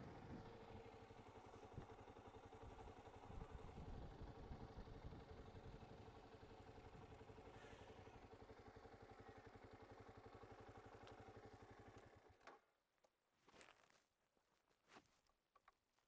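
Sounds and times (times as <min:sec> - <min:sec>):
motorcycle engine at low revs: 0:00.0 - 0:12.7.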